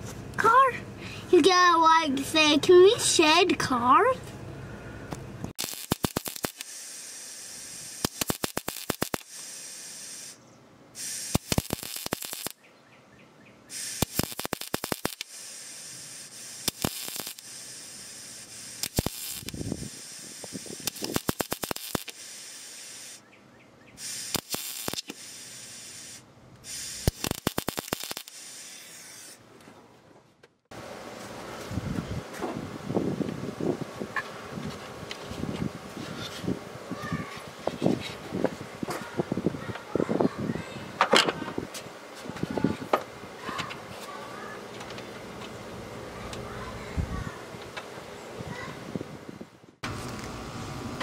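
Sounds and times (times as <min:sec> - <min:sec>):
arc welding crackling hiss: 0:05.5 - 0:10.4, 0:11.0 - 0:12.6, 0:13.7 - 0:23.2, 0:24.0 - 0:29.5.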